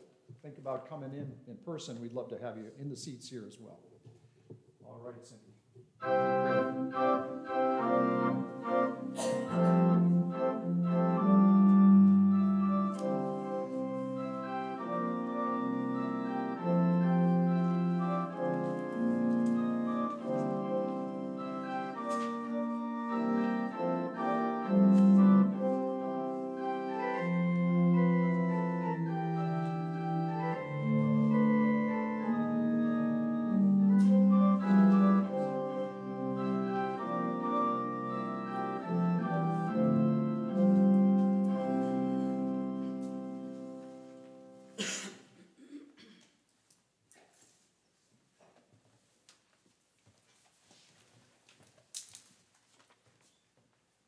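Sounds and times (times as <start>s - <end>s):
organ chords and melody: 6.0s - 44.9s.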